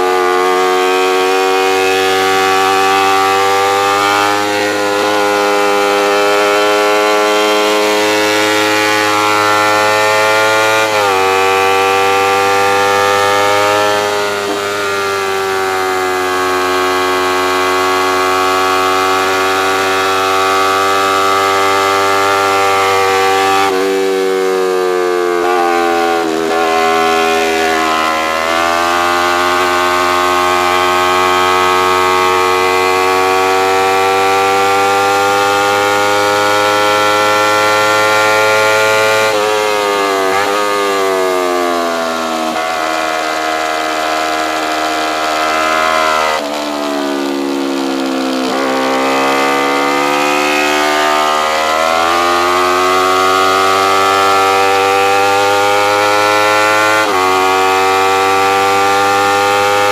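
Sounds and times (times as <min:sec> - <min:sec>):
motorcycle engine revving high: 0:00.0 - 0:59.9.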